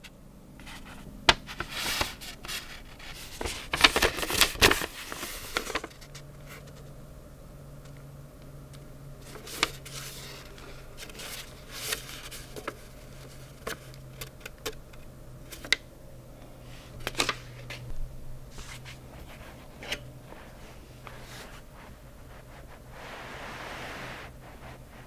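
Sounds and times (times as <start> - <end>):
low steady hum: 0.0 - 25.0
paper card crinkling and rustling: 0.6 - 6.9, 9.2 - 15.8.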